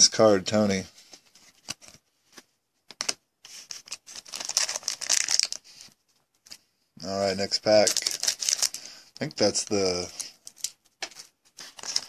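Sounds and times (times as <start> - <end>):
foil wrapper crinkling: 3.8 - 5.8, 7.7 - 8.9, 9.5 - 12.0.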